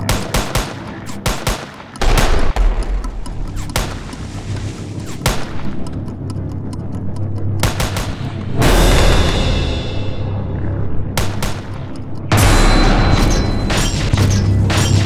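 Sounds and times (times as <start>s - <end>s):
gunfire shots and volleys: 0.0s - 5.9s, 7.6s - 9.8s, 11.1s - 15.0s
film music score: 0.0s - 15.0s.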